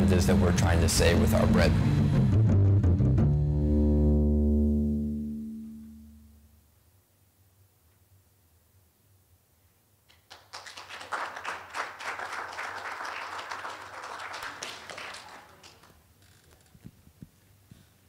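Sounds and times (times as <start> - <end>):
audience applauding: 10.1 - 16.0.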